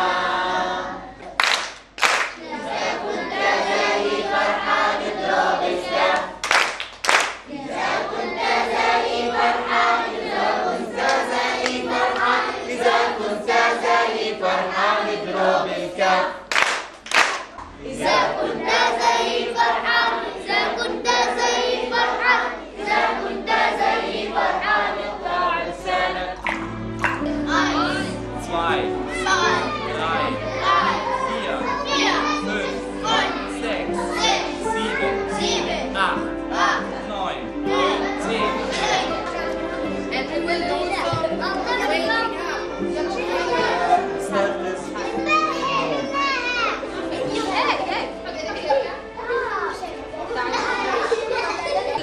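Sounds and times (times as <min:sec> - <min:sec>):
group singing in chorus: 0:00.0 - 0:01.4, 0:02.2 - 0:06.7, 0:07.4 - 0:16.7, 0:17.7 - 0:42.2
hand clapping in rhythm: 0:01.3 - 0:02.4, 0:06.1 - 0:07.5, 0:16.5 - 0:17.7, 0:26.4 - 0:27.4.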